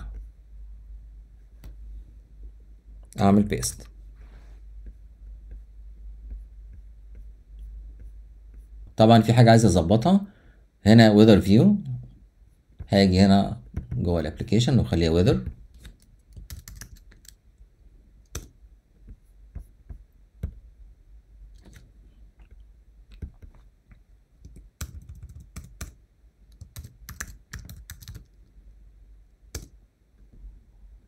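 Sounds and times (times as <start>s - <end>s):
computer keyboard typing: 15.3s - 17.4s, 18.3s - 18.6s, 23.1s - 28.4s, 29.5s - 29.8s.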